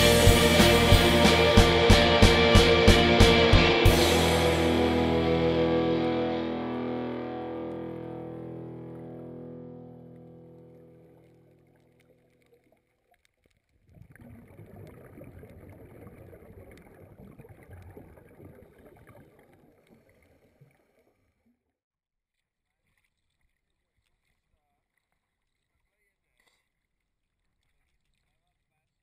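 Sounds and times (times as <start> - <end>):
underwater bubbles burbling: 13.8 - 21.2.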